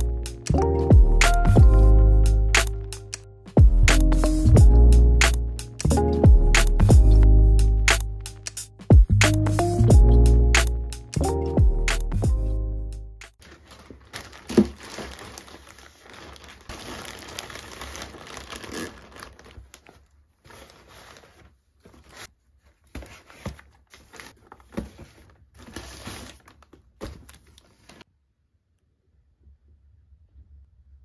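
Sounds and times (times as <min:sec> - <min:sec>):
plastic bags crinkling: 0:13.4 - 0:22.3, 0:22.9 - 0:28.0.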